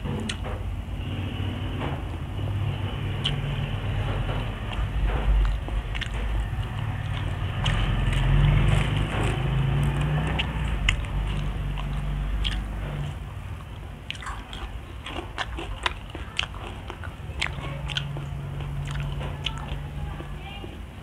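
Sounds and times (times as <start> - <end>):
close-up chewing: 4.3 - 20.8
mouth clicks: 7.1 - 12.8.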